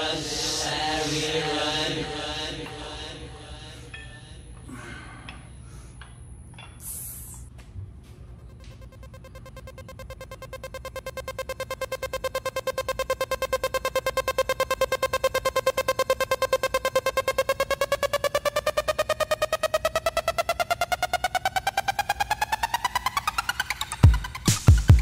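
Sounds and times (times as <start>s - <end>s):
fast-pulsing synthesizer note: 8.3s - 25.0s.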